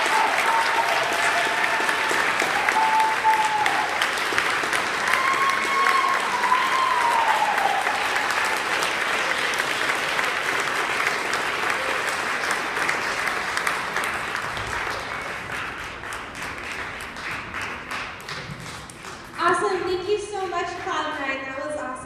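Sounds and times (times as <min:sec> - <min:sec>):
audience applauding: 0:00.0 - 0:19.5.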